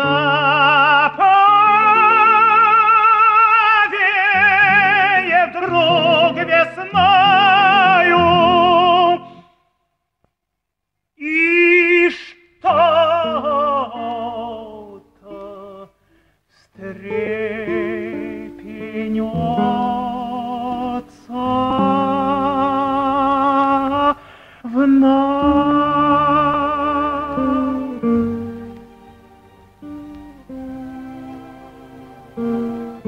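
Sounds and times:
operatic solo singing: 0.0 - 9.6, 11.2 - 33.0
instrumental accompaniment: 25.5 - 33.0.

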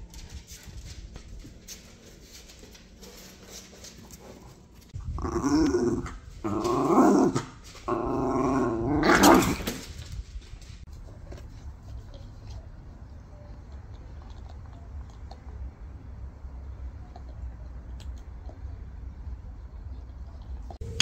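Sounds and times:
dog growling in play: 5.0 - 9.8.

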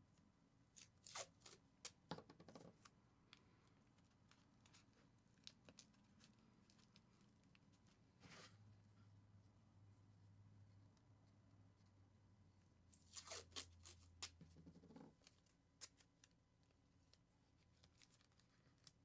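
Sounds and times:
tape pulled off roll and torn: 0.8 - 2.0, 13.0 - 14.4.

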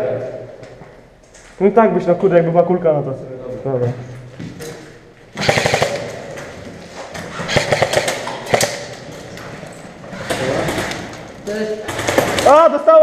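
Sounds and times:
airsoft rifle bursts echoing: 5.4 - 6.4, 7.4 - 9.7.

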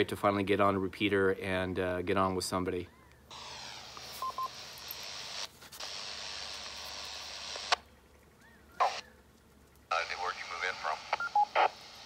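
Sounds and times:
burst of static: 3.3 - 7.8, 9.9 - 12.0
radio static hiss: 3.3 - 7.9, 8.8 - 9.1, 9.9 - 12.0
radio click: 9.9 - 12.0.

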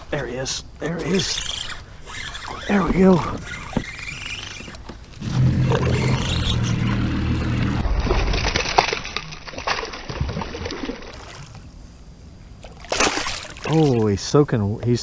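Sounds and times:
spinning reel whirring: 1.0 - 7.6.

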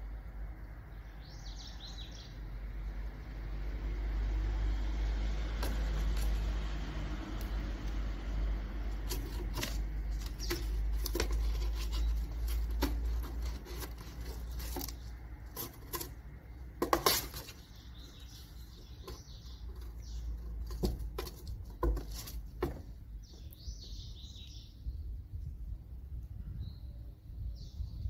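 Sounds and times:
paws and string tapping cardboard: 5.6 - 6.6, 8.8 - 17.7, 18.8 - 23.1.

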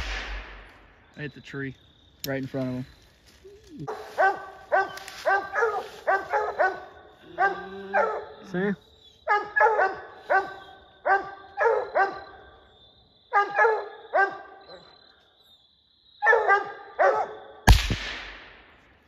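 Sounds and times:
gunshot with echo: 0.0 - 0.9, 17.7 - 18.8
dog barking: 3.9 - 8.5, 9.2 - 12.5, 13.3 - 14.9, 16.2 - 17.5.

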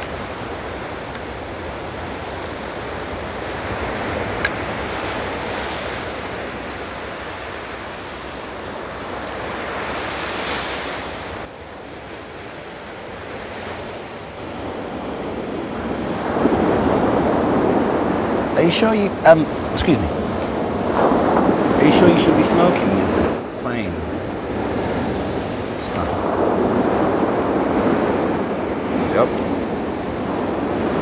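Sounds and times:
ocean surf washing on beach: 0.0 - 31.0
wind: 0.0 - 31.0.

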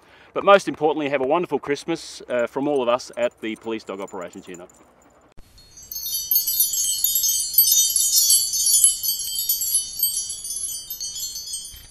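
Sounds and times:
high-pitched tinkling chimes: 5.4 - 11.9.

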